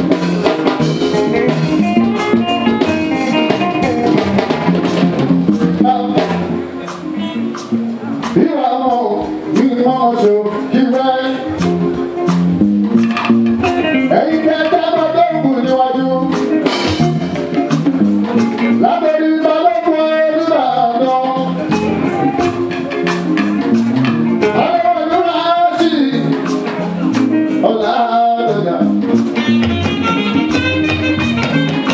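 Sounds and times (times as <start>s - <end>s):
drums: 0.0s - 31.9s
guitar: 0.0s - 31.9s
man singing into a microphone: 8.4s - 11.7s, 13.9s - 16.5s, 18.6s - 22.5s, 24.5s - 26.4s, 27.5s - 29.0s.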